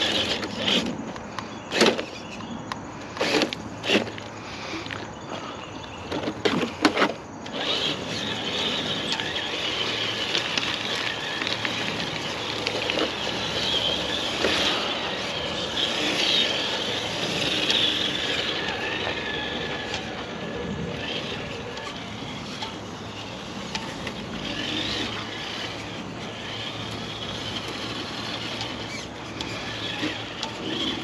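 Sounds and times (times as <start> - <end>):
electric motor whirring: 7.4 - 31.0.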